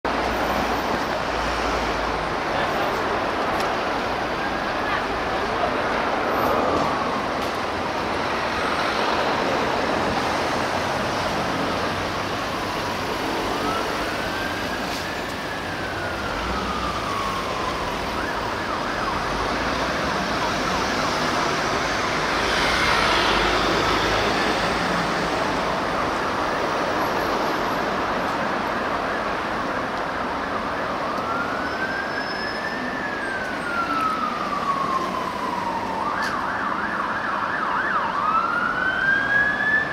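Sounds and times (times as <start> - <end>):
city traffic noise: 0.0 - 39.9
fire engine siren wailing: 0.1 - 39.9.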